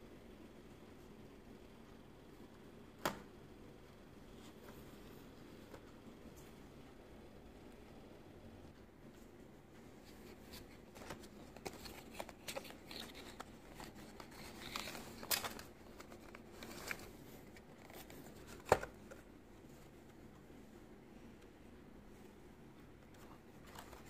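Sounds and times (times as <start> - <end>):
cardboard and plastic packaging rustling: 10.0 - 19.3.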